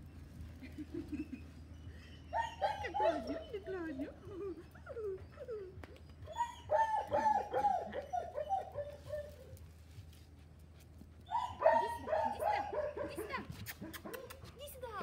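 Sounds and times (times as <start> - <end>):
small dog yapping: 5.8 - 9.4, 11.3 - 14.7.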